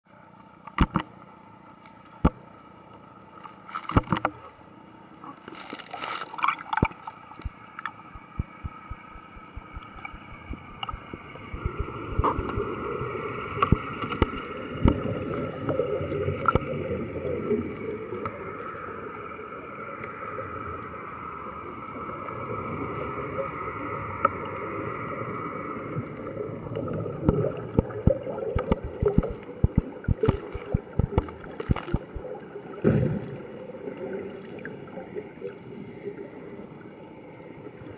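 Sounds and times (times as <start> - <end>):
underwater bubbling and gurgling: 0.1 - 37.9
steady drone with thin whine: 6.8 - 27.7
sharp clicks and knocks: 27.3 - 32.2.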